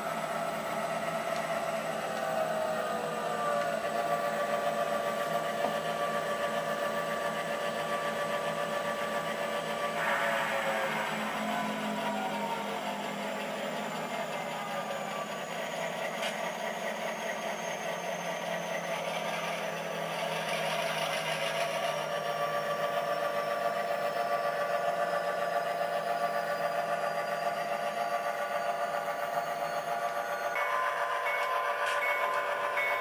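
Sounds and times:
diesel engine rumble from small speaker: 0.0 - 30.6
thin high whine: 9.9 - 15.4.

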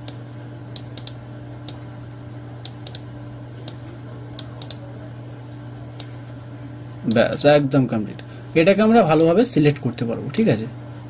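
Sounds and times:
computer mouse clicking: 0.0 - 1.8, 2.6 - 3.8, 4.4 - 4.8
steady low hum: 0.0 - 11.0.

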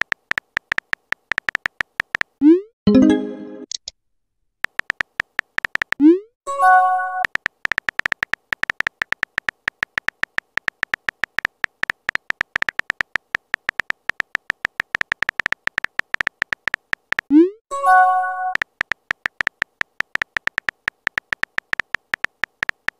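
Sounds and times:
phone keyboard typing clicks: 0.0 - 2.4, 4.6 - 6.0, 7.2 - 17.3, 18.5 - 22.9.

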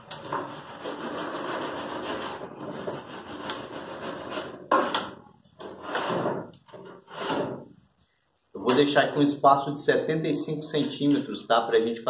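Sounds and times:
folding ruler rubbing and scraping: 0.0 - 7.8.

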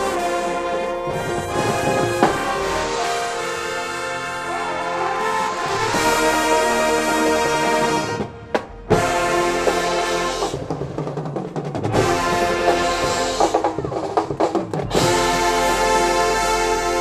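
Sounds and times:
marching band playing: 0.0 - 17.0.

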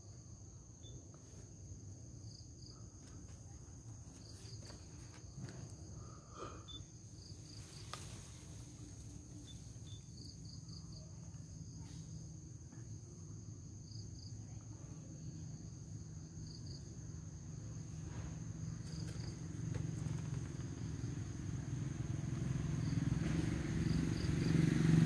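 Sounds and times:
high insect trill: 0.0 - 25.0.

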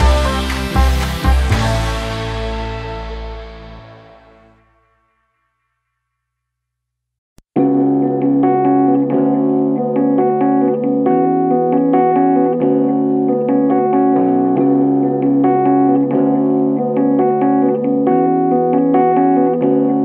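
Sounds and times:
instrumental keyboard music: 0.0 - 3.4, 7.5 - 20.0.

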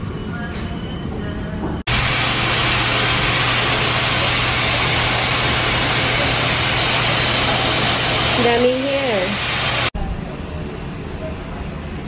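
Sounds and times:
blow dryer running: 1.9 - 9.9.

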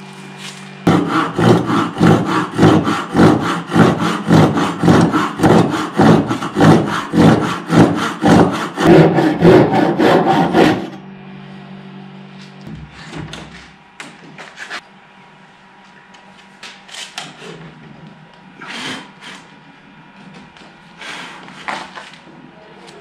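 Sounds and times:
hand tool strokes on wood: 0.4 - 11.0.

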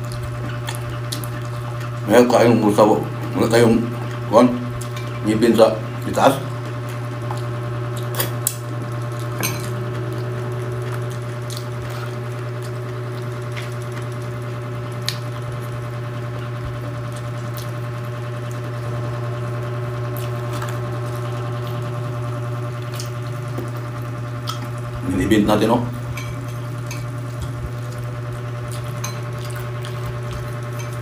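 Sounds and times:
chewing and eating clicks: 0.0 - 25.2, 25.9 - 31.0
steady low hum: 0.0 - 31.0.

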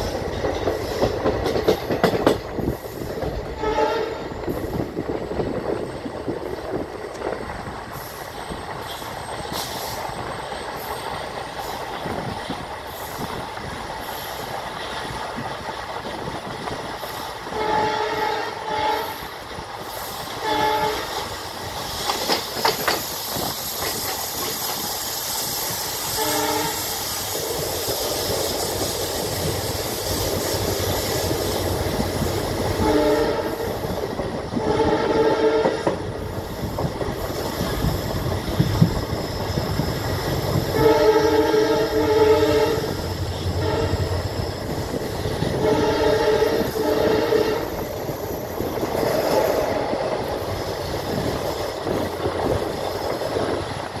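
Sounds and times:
train wheels rumbling and clacking: 0.0 - 54.0
locomotive horn honks: 3.6 - 4.2, 17.6 - 19.2, 20.4 - 21.1, 26.2 - 26.8, 32.8 - 33.7, 34.6 - 35.9, 40.8 - 43.0, 43.6 - 44.2, 45.6 - 47.7.

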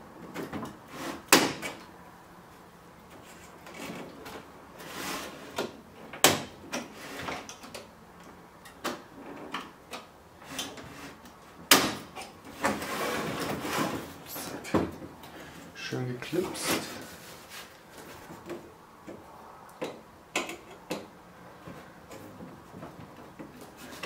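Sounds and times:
metal scraping on wood: 12.2 - 14.6.

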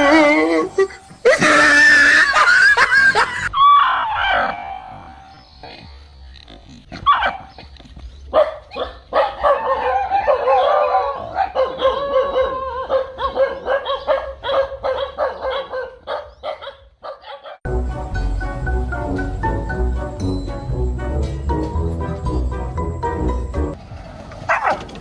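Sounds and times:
dogs barking and yelping: 0.0 - 5.8, 7.0 - 17.7, 24.5 - 25.0.

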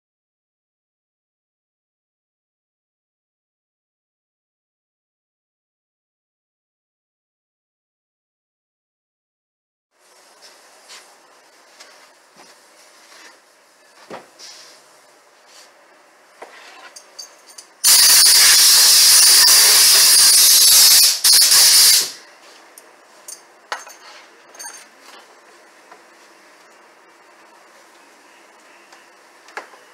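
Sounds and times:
compressed air hissing from nozzle: 17.8 - 22.2.

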